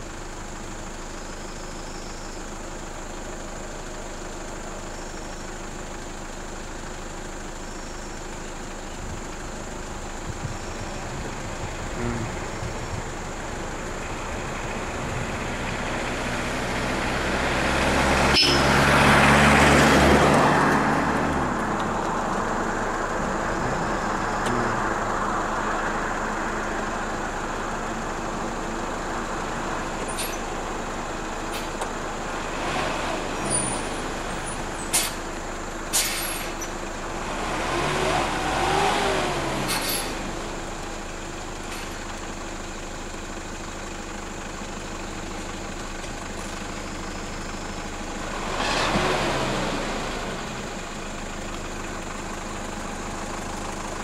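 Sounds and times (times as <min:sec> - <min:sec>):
vehicle engine passing by: 0:10.1 - 0:41.1, 0:47.0 - 0:54.0.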